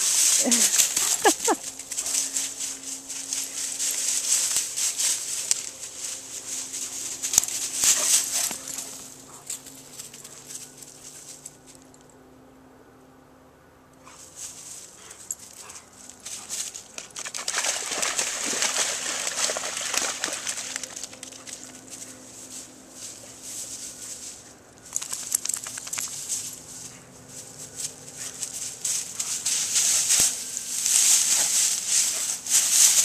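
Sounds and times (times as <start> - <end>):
dry grass rustling and crackling: 0.0 - 12.0, 14.2 - 33.0.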